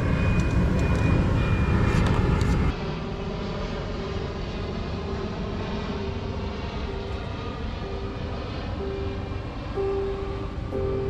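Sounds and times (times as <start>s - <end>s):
distant traffic rumble: 0.0s - 11.0s.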